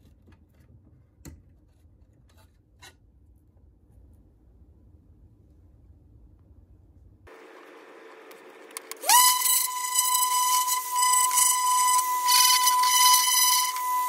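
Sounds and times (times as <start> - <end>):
orbital sander whining: 7.4 - 14.0
sander pad hissing on wood: 9.0 - 14.0.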